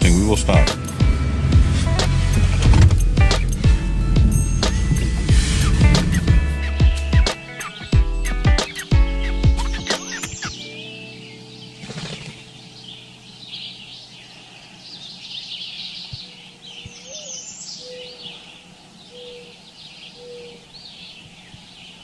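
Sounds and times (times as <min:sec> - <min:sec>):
birds chirping and twittering: 0:02.4 - 0:22.0
low drawn-out bird call: 0:13.7 - 0:21.4.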